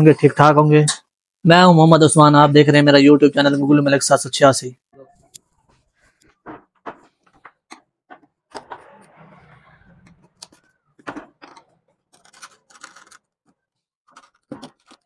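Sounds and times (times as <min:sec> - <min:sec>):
screwdriver clicking and scraping: 0:10.1 - 0:10.7, 0:11.4 - 0:15.0.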